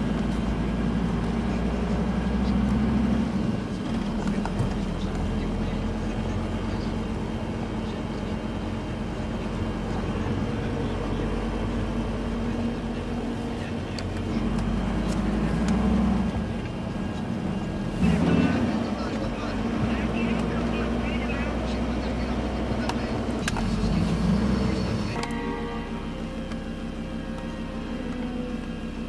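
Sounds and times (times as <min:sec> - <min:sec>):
constant low hum: 0:00.0 - 0:29.0
vehicle engine and road noise: 0:00.0 - 0:29.0.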